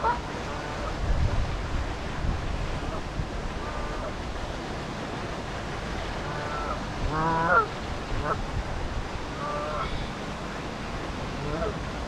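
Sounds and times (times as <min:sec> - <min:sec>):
geese honking: 0:06.3 - 0:07.7.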